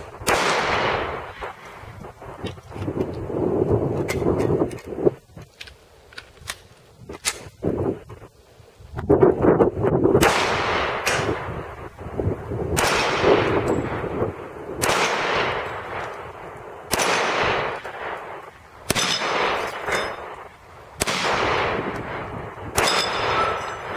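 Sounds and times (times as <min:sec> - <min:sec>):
pistol shots with echo: 0:00.0 - 0:01.7, 0:10.2 - 0:11.5, 0:12.8 - 0:14.1, 0:14.8 - 0:16.1, 0:16.9 - 0:20.4, 0:21.0 - 0:23.9
bullets clanking on steel plates: 0:18.9 - 0:20.4, 0:22.8 - 0:23.9.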